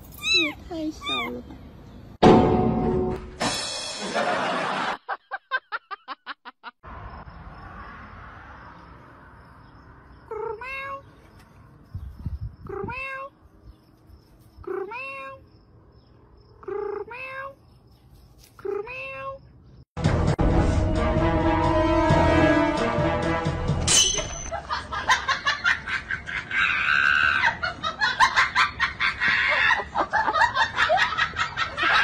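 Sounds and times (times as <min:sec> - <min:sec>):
kitten meowing: 0:00.2 - 0:01.5, 0:12.7 - 0:13.3.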